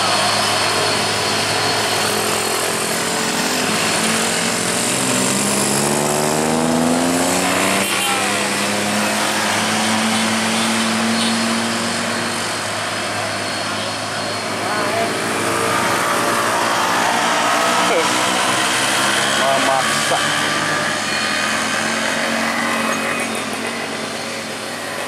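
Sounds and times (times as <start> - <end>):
motor scooter passing by: 0.0 - 25.0
passing traffic: 0.0 - 25.0
truck engine labouring: 0.0 - 25.0.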